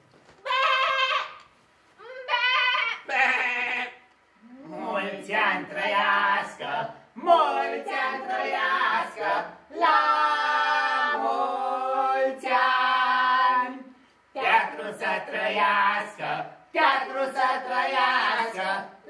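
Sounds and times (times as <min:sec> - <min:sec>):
group of voices singing: 0:03.8 - 0:19.0.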